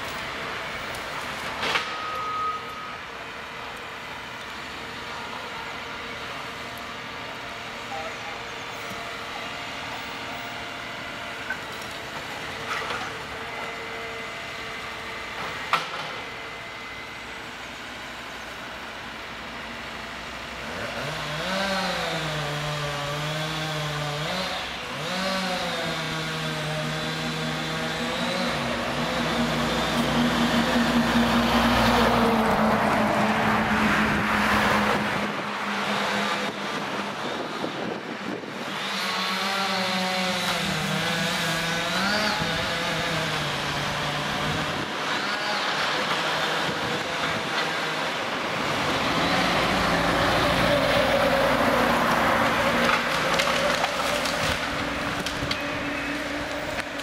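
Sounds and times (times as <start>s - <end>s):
diesel engine revving: 20.5s - 37.6s, 38.6s - 57.0s.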